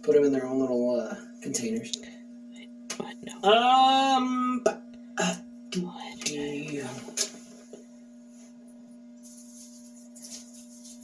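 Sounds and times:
electrical hum: 0.0s - 11.0s.

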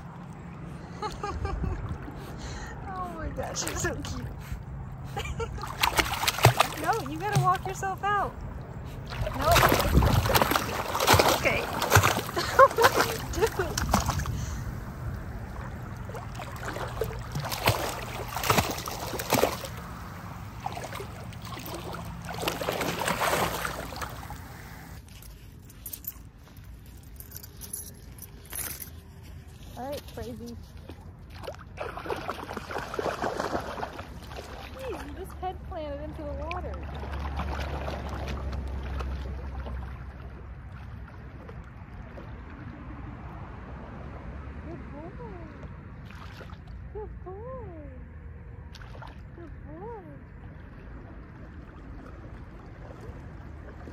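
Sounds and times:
seawater splashing and sloshing: 1.1s - 25.5s, 30.2s - 44.0s, 45.9s - 46.9s, 48.7s - 53.9s
wind rumbling on microphone: 8.3s - 12.4s.

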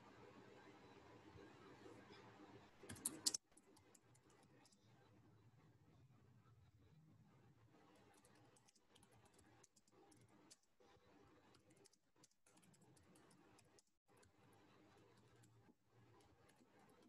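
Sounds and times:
faint keyboard typing: 2.8s - 5.0s, 7.8s - 17.0s.

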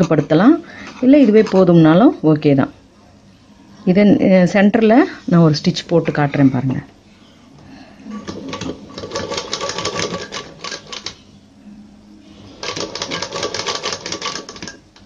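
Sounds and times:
sewing machine needle clattering: 8.3s - 11.2s, 12.6s - 14.8s.

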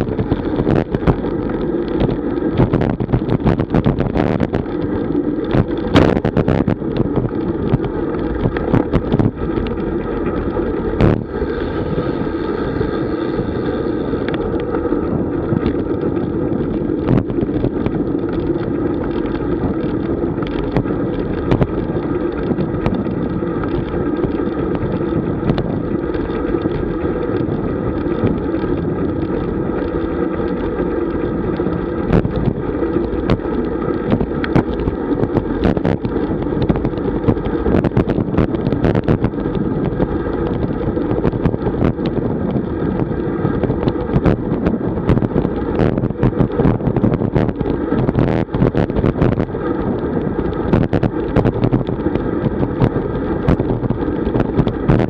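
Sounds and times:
bicycle tyre noise: 0.0s - 55.0s
wind rushing over microphone: 0.0s - 55.0s.

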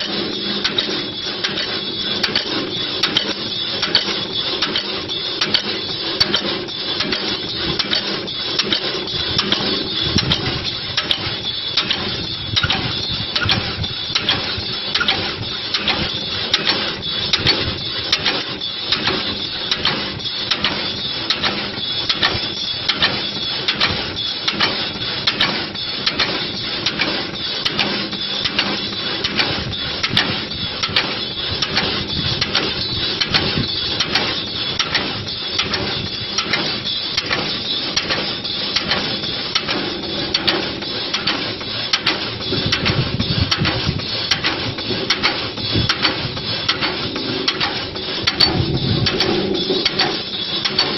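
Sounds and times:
wood shaving machine clatter: 0.0s - 50.9s
motor hum: 29.4s - 50.9s.

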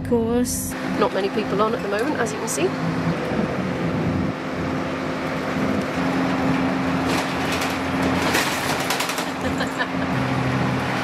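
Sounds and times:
bus engine hum: 0.0s - 11.0s
road noise: 0.0s - 11.0s
rattles and knocks: 7.0s - 10.0s.

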